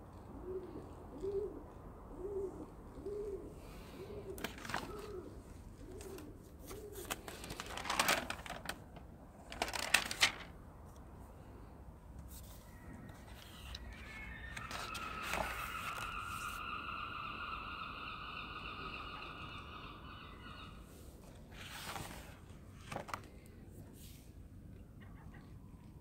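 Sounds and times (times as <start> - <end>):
pigeon cooing: 0.0 - 7.6
sketchbook pages rustling: 4.3 - 5.2, 5.8 - 11.0, 12.2 - 16.6, 21.2 - 24.3.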